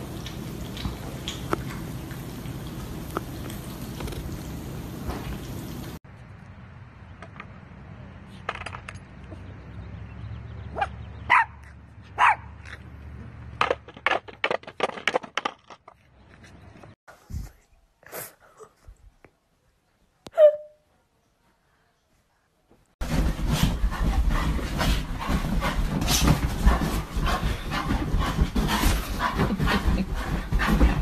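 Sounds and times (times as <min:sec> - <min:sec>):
dog barking: 0:10.7 - 0:11.6, 0:12.2 - 0:12.6.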